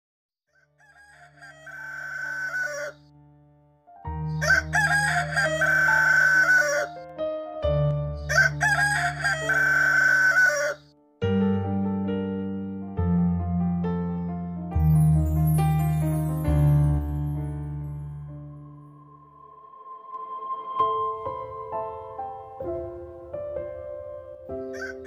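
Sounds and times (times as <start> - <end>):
rooster crowing: 0.5 - 3.0, 4.3 - 7.0, 8.3 - 10.8, 24.7 - 25.0
electric piano music: 1.8 - 25.0
low sustained music tones: 14.8 - 24.6.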